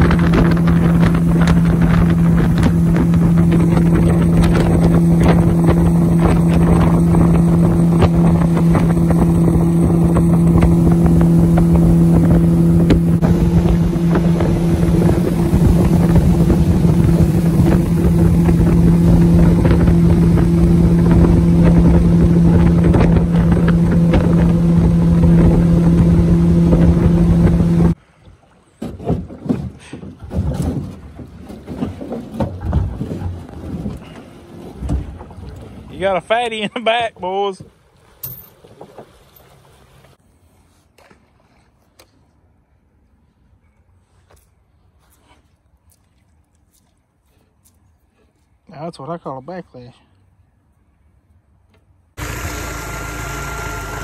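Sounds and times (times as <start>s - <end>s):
outboard motor running: 0.0s - 28.0s, 52.1s - 54.0s
wind on microphone: 0.0s - 28.0s.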